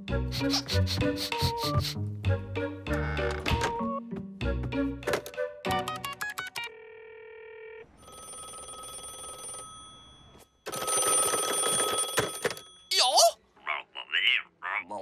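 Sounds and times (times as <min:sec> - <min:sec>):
telephone bell ringing: 0:06.7 - 0:13.0.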